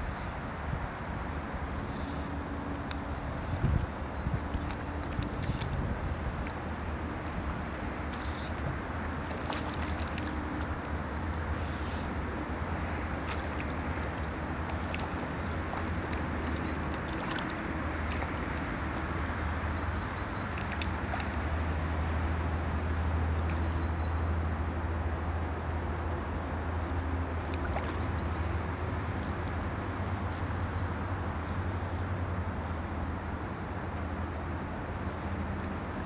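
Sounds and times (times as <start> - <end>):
wind on microphone: 3.1 - 6.4.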